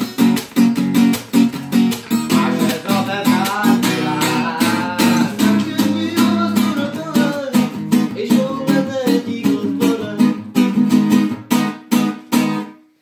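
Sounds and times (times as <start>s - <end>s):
acoustic guitar strumming: 0.0s - 13.0s
man singing: 2.1s - 10.8s.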